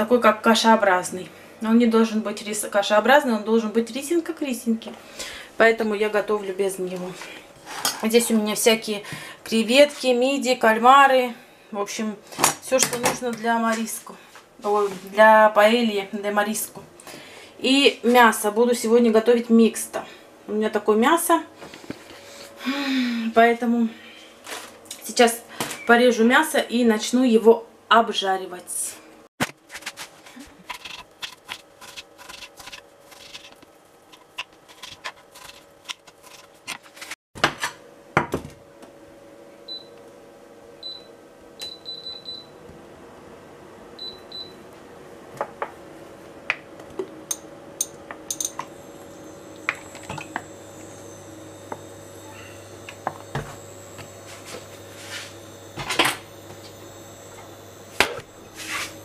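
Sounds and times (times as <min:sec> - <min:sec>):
induction hob humming: 0:37.9 - 0:59.0
induction hob beeping: 0:47.3 - 0:59.0.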